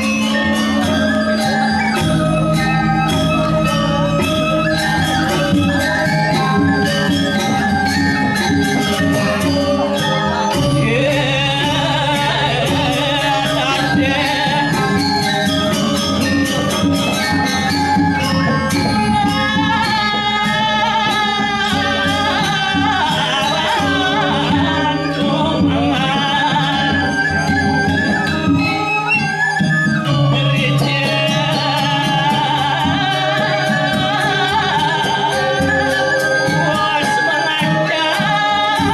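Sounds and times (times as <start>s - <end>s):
wavering high melody: 0.0s - 38.9s.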